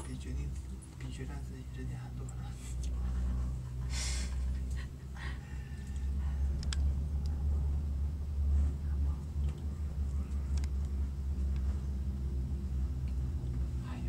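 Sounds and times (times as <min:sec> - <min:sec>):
cable car rumble and hum: 0:00.0 - 0:14.0
faint clicks: 0:09.4 - 0:11.7.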